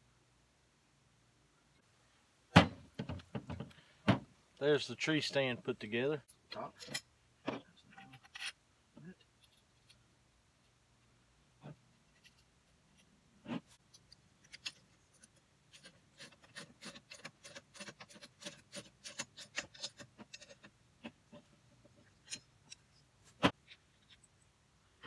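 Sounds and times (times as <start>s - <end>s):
knock of parts: 2.5s - 4.3s
metal parts clicking and tapping: 13.8s - 24.4s.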